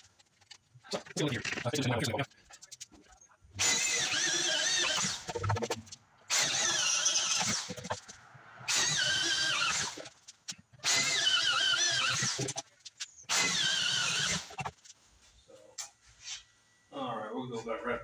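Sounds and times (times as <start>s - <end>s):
electric drill boring into wood: 3.6s - 5.7s, 6.3s - 7.8s, 8.7s - 10.1s, 10.8s - 12.6s, 13.3s - 14.6s.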